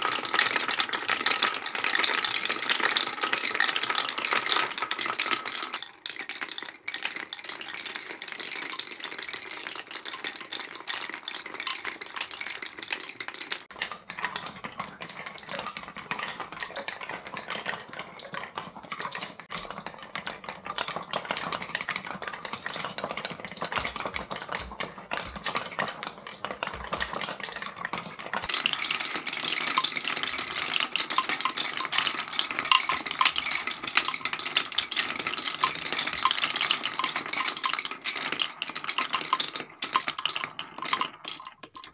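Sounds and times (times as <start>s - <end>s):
marbles rolling on wooden run: 0.0s - 13.7s, 23.7s - 41.9s.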